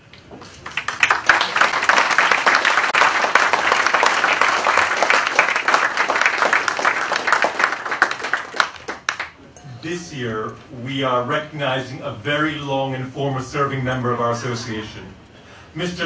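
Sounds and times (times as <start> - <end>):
audience applause: 0.4 - 9.4.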